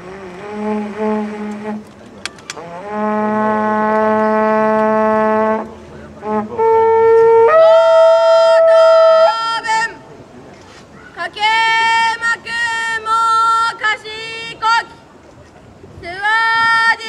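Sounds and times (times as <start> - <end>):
conch shell trumpet notes: 0.0 - 2.0, 2.6 - 10.0.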